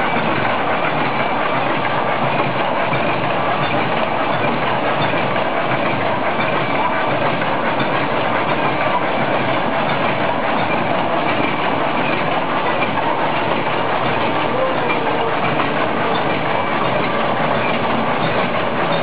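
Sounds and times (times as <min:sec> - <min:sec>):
wire mesh machine clattering: 0:00.0 - 0:19.0.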